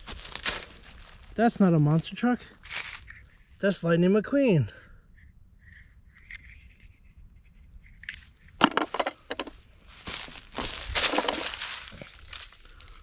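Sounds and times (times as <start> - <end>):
footsteps crunching dry leaves: 0.0 - 3.0, 9.3 - 13.0.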